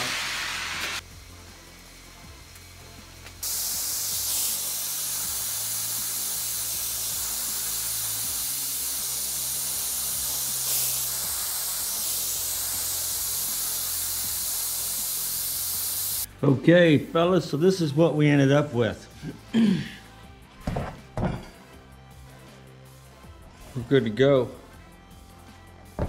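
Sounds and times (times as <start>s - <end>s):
torch flame hissing: 0.0s - 16.3s.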